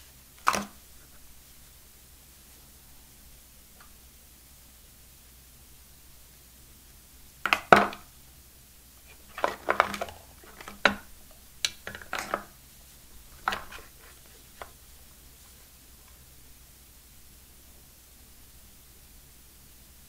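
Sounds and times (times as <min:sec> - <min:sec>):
earphones and cable clicking: 0:00.4 - 0:00.8, 0:07.4 - 0:08.0, 0:09.0 - 0:14.9.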